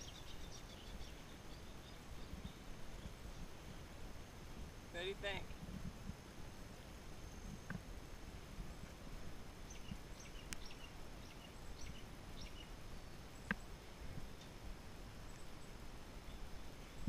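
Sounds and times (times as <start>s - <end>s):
faint bird chirps: 0.0s - 4.4s, 6.8s - 7.9s, 9.6s - 14.6s, 15.2s - 17.0s.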